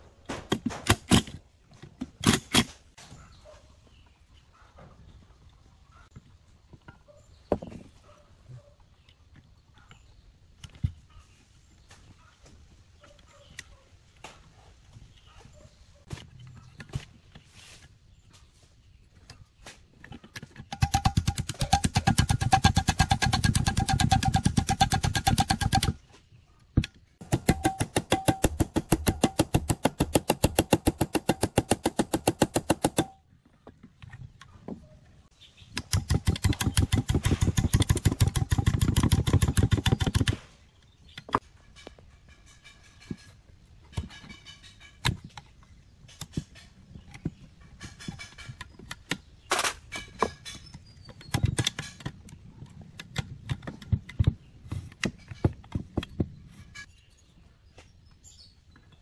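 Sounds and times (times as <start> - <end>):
metal tools clicking and tapping: 26.8 - 33.2.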